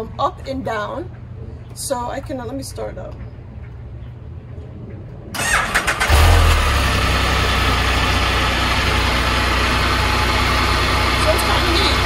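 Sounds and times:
engine idling: 0:05.4 - 0:12.0.

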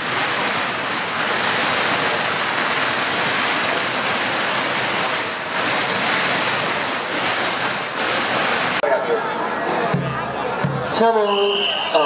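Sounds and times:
firecrackers crackling: 0:00.0 - 0:08.8.

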